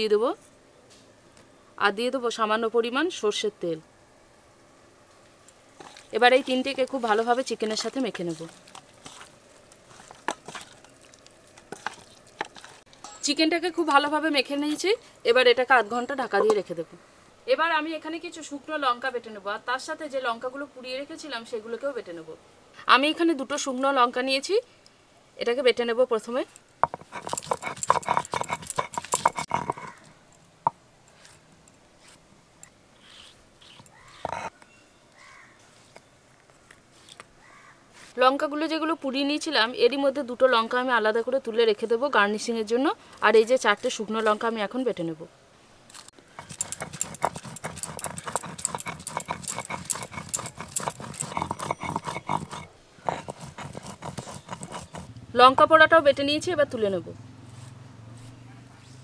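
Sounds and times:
stone muller knocking on stone slab: 0:26.8 - 0:29.9
stone roller grinding on stone slab: 0:26.8 - 0:30.0, 0:33.7 - 0:34.5, 0:46.4 - 0:55.6.

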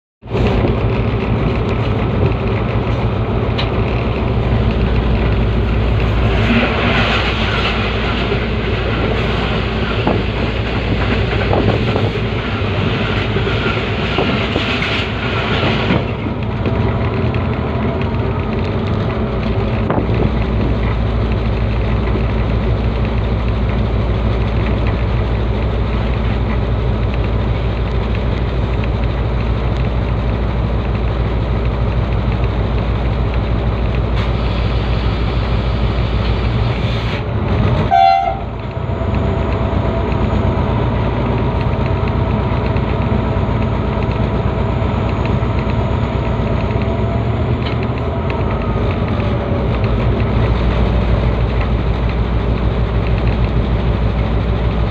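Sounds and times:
diesel locomotive engine drone: 0:00.2 - 0:54.9
wheels rumbling on rails: 0:00.2 - 0:54.9
short tone: 0:37.9 - 0:38.5.

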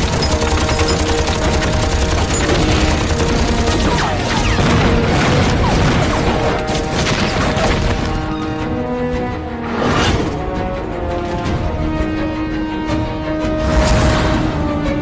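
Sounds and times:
rapid gunfire: 0:00.0 - 0:08.0
film music: 0:00.0 - 0:15.0.

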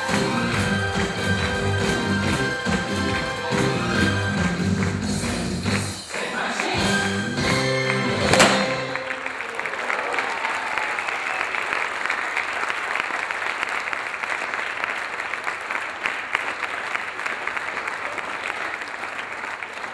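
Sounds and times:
audience clapping: 0:00.0 - 0:19.9
show music final hit: 0:06.9 - 0:09.2.

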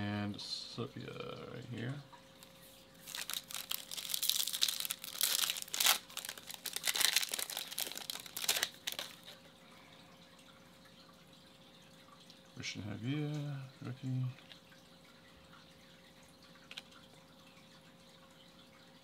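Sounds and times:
foil wrapper crinkling: 0:03.0 - 0:09.4.

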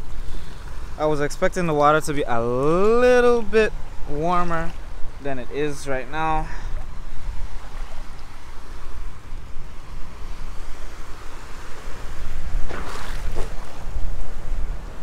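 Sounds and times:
wind rumbling on microphone: 0:00.0 - 0:15.0
small waves washing over rocks: 0:09.8 - 0:14.9
water splashing: 0:12.2 - 0:14.8.

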